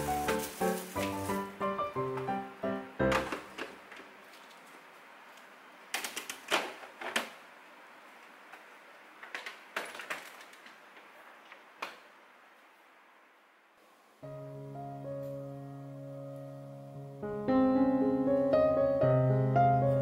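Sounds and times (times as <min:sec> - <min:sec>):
plastic containers clattering: 0:09.2 - 0:10.8.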